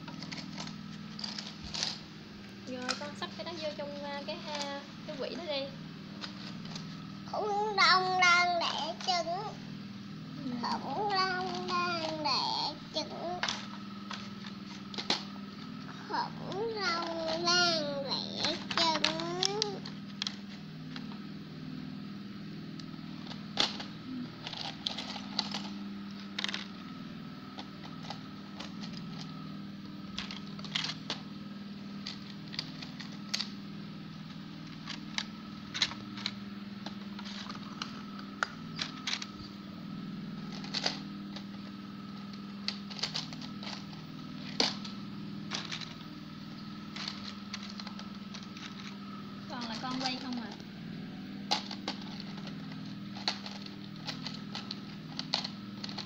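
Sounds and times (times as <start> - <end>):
plastic toys clicking and clattering: 0.0 - 2.0, 2.7 - 5.5, 6.2 - 9.6, 10.7 - 15.3, 16.4 - 21.0, 23.2 - 26.8, 27.6 - 29.3, 30.1 - 31.2, 32.0 - 33.5, 34.6 - 39.5, 40.5 - 41.5, 42.4 - 46.0, 46.9 - 50.6, 51.5 - 56.0
low hum: 0.0 - 56.0.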